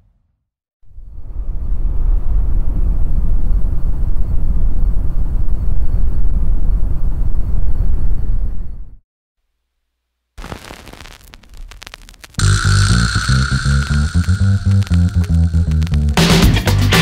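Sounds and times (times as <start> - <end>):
deep rumbling: 10.4 - 16.5.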